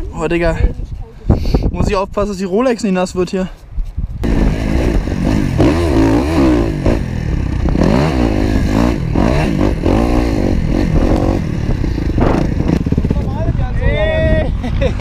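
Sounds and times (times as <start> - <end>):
motocross bike engine revving: 4.2 - 13.3.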